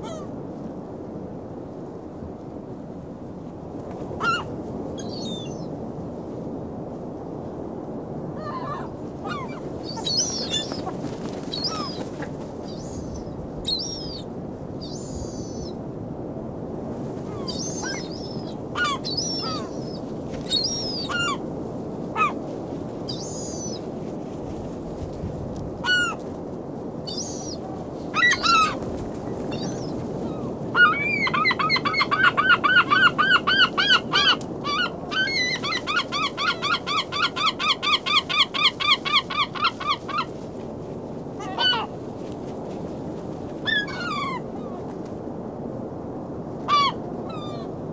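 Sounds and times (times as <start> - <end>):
surf washing: 6.6 - 47.9
gulls calling: 8.4 - 15.8, 17.3 - 21.4, 27.1 - 40.3.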